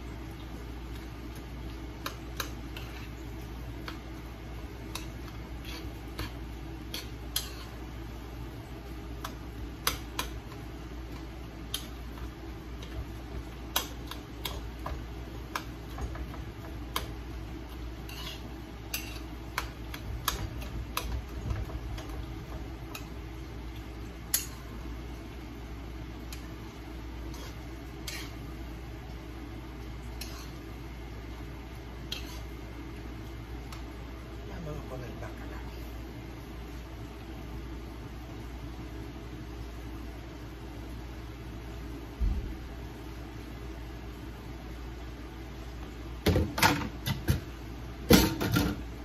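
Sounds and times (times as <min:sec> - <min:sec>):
steady low hum: 0:00.0 - 0:49.0
utensil scraping a skillet: 0:00.9 - 0:08.1, 0:09.0 - 0:24.8, 0:26.2 - 0:28.8, 0:29.7 - 0:32.8.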